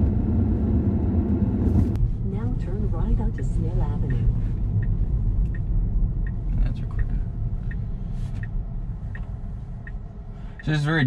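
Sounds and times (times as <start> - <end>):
road and tyre rumble: 0.0 - 11.0
faint ticking: 4.0 - 11.0.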